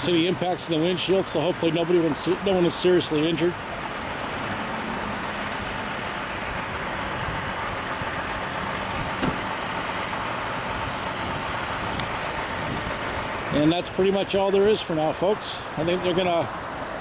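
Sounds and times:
street traffic: 0.0s - 17.0s.

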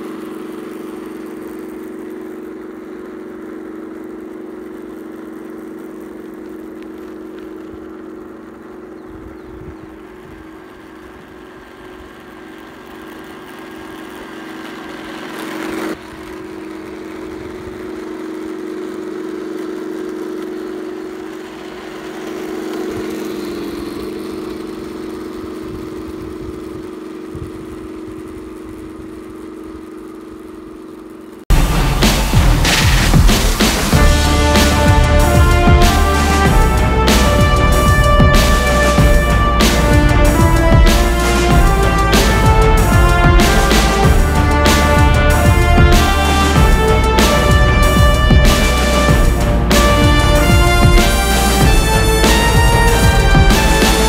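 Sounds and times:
model tank humming drone: 0.0s - 54.0s
rising hiss: 31.5s - 54.0s.

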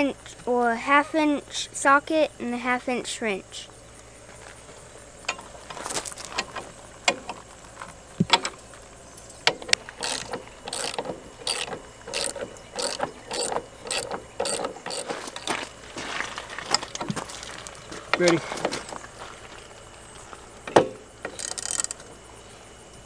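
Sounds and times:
ratchet wrench clicking: 9.5s - 15.5s, 21.3s - 22.1s.

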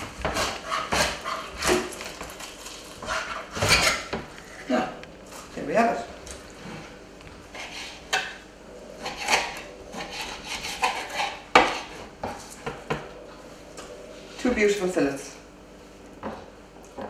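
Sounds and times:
knife scraping on cutting board: 0.2s - 2.0s, 3.0s - 4.7s, 7.5s - 8.4s, 9.0s - 12.0s.

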